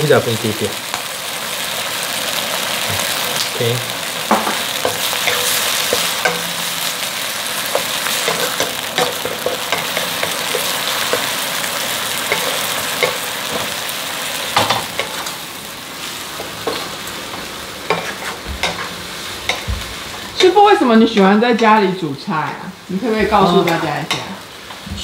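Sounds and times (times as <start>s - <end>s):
food sizzling in a pan: 0.0s - 25.0s
spatula scraping a pan: 4.8s - 7.0s, 17.8s - 20.3s.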